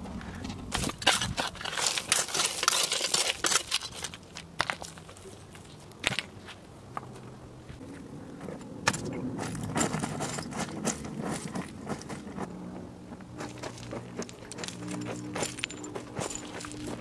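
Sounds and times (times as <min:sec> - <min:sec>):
footsteps on gravel: 0:00.0 - 0:17.0
stones clicking underfoot: 0:00.2 - 0:06.4, 0:13.1 - 0:17.0.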